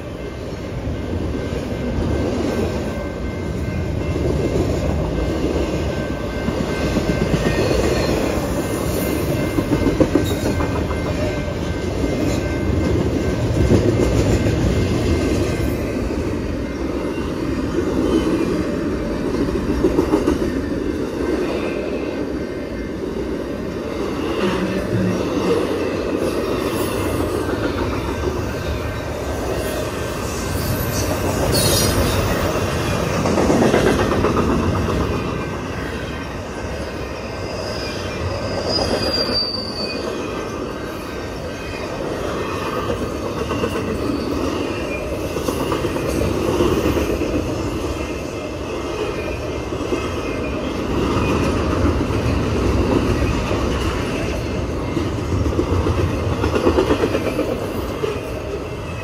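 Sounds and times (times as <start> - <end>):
train wheels rumbling on rail: 0.0 - 59.0
high wheel squeal: 29.6 - 32.5, 37.1 - 40.5, 43.6 - 45.2.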